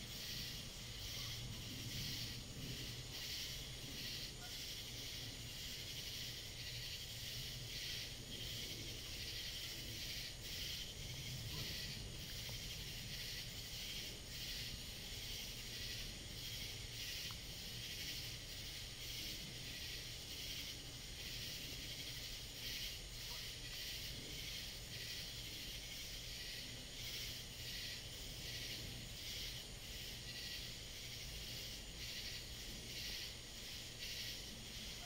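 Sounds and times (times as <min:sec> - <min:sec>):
insects buzzing: 0:00.0 - 0:35.0.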